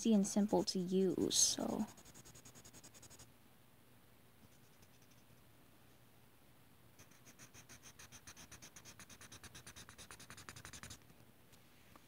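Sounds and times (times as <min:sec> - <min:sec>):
marker scribbling on paper: 0:00.0 - 0:03.2, 0:07.0 - 0:11.0.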